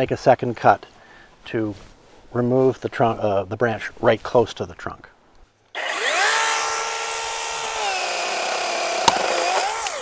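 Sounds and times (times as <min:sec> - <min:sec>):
chainsaw cutting branch: 0:05.7 - 0:10.0
sharp wood crack: 0:05.8 - 0:10.0.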